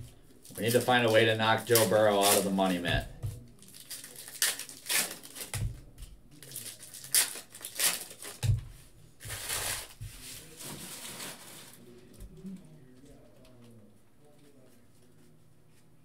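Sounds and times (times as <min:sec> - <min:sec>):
foil wrappers crinkling: 0:00.4 - 0:03.0, 0:03.6 - 0:05.7, 0:06.4 - 0:08.5, 0:09.2 - 0:11.8
cards rustling: 0:00.5 - 0:03.0.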